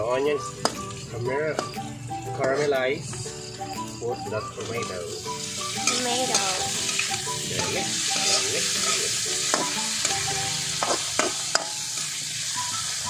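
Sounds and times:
vegetables sizzling in a wok: 0.0s - 13.0s
spatula stirring and scraping: 5.8s - 10.2s, 10.8s - 11.7s
spatula clacking on wok: 5.8s - 12.2s.

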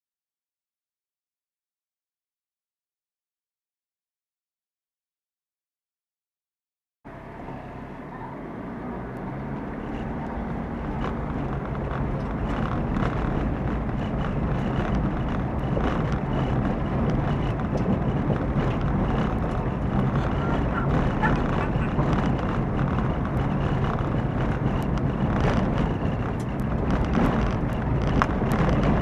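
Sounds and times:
car engine and tyre rumble: 7.1s - 29.0s
small knocks and clicks: 9.2s - 20.3s, 20.9s - 29.0s.

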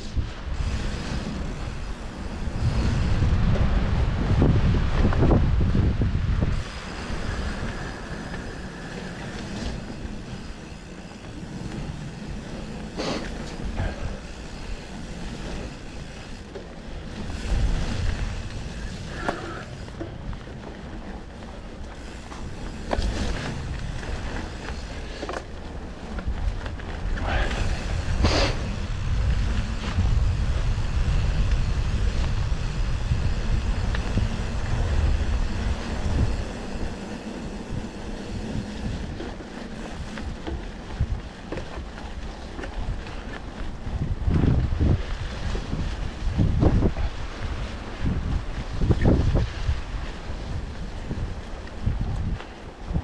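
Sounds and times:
bike clicks and rattles: 0.0s - 53.0s
tyre and trail rumble: 0.0s - 53.0s
wind rush on microphone: 0.0s - 53.0s.

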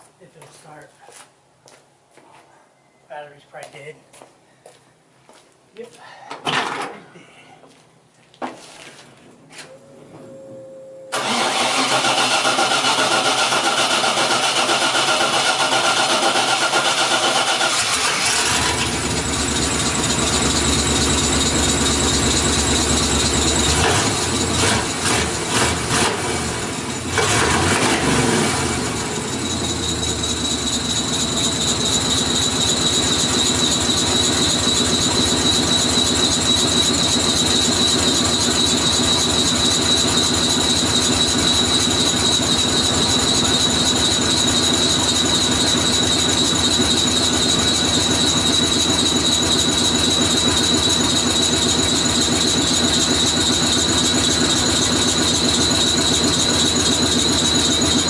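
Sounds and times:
thin high whine: 9.6s - 11.2s
pickup truck engine running: 11.2s - 58.0s.

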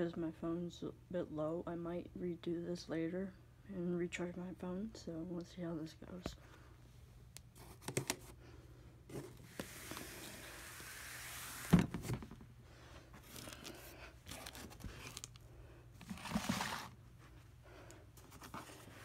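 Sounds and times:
rustling handling noise: 9.1s - 19.0s.

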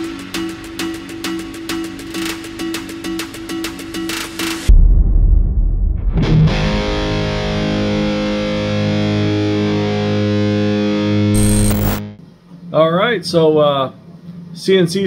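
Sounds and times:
deep low hit: 4.7s - 8.2s
distorted electric guitar chord: 6.5s - 12.1s.

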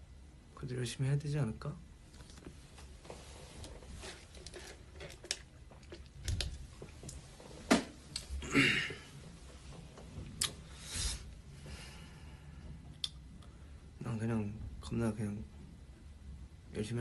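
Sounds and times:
jacket rustling on microphone: 2.1s - 5.1s.

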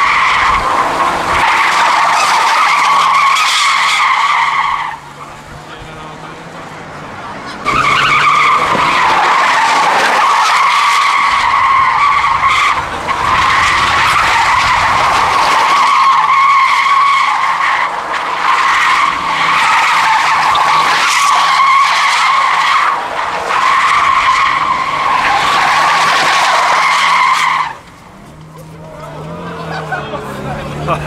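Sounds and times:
car engine running: 0.0s - 31.0s
tyres screeching: 0.0s - 31.0s.

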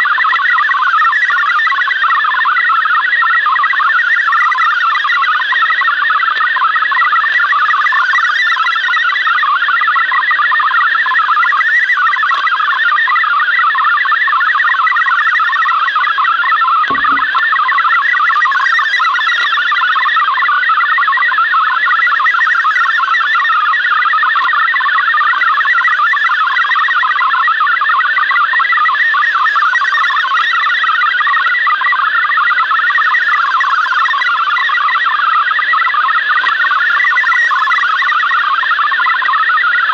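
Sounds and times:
digital data signal warble: 0.0s - 39.9s
soft knock: 16.9s - 17.4s.

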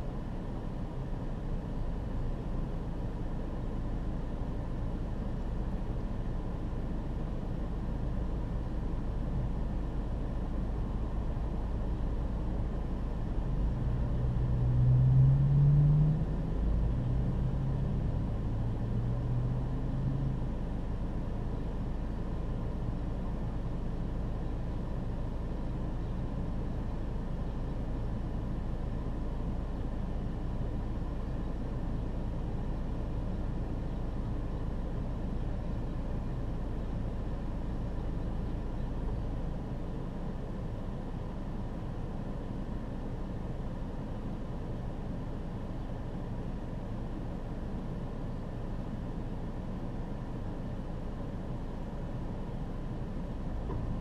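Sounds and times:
vehicle engines rumbling: 0.0s - 54.0s
engine revving as vehicle pulls away: 13.6s - 20.5s.

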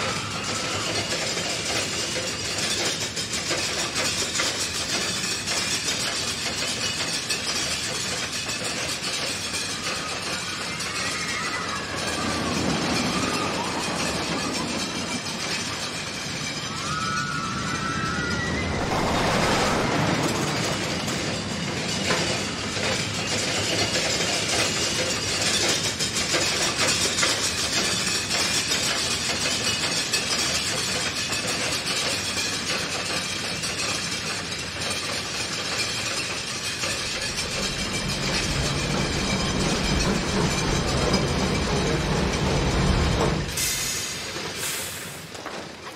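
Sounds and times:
ride cars clattering on track: 0.0s - 45.9s
deeper rumble: 11.2s - 22.4s, 36.5s - 43.6s.

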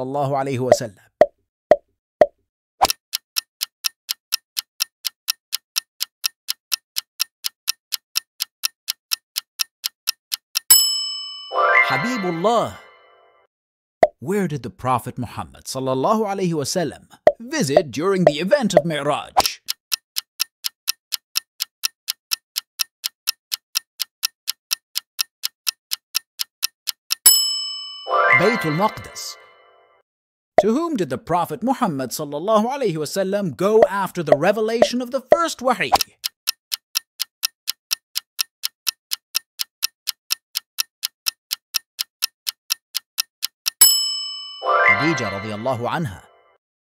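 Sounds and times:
clock ticking: 2.8s - 11.0s, 17.2s - 27.5s, 30.6s - 30.8s, 33.7s - 44.1s.

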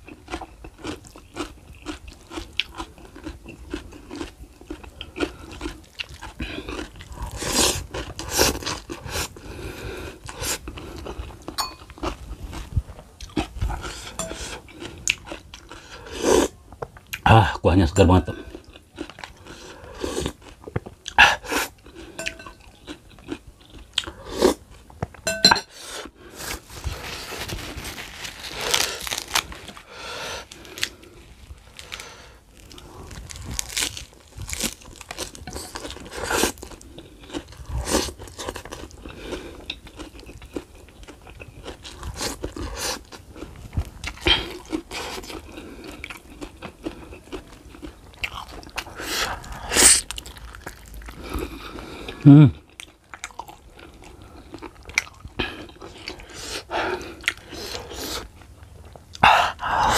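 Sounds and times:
person chewing and crunching: 0.0s - 59.9s.

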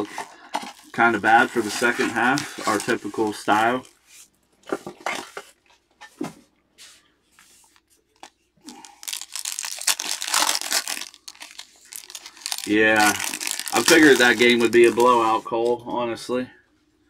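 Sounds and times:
foil wrapper rustling and crinkling: 0.0s - 4.0s, 7.6s - 15.8s
foil wrapper tearing: 1.5s - 3.8s, 8.7s - 15.4s.

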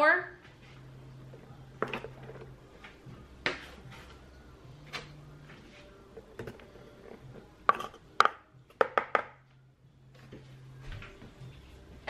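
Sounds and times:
measuring cup knocking on bowl: 7.7s - 9.3s.

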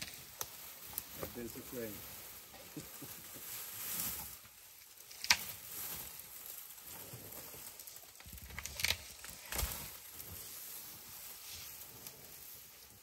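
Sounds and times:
branches and leaves rustling: 0.0s - 13.0s
twig snapping: 5.0s - 5.6s, 8.1s - 9.9s.

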